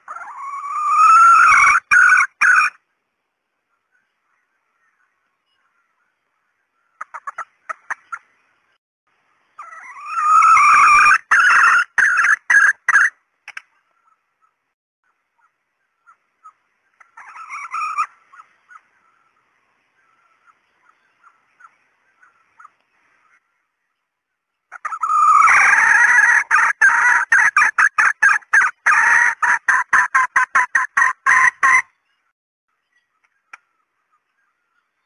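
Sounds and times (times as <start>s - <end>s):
junglefowl calling: 0.0s - 2.8s, 9.6s - 13.2s, 13.8s - 23.7s, 24.7s - 32.0s.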